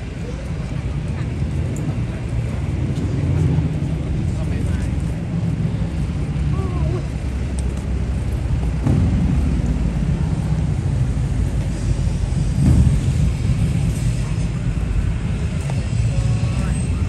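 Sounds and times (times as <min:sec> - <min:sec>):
low rumble of passing cars: 0:00.0 - 0:17.0.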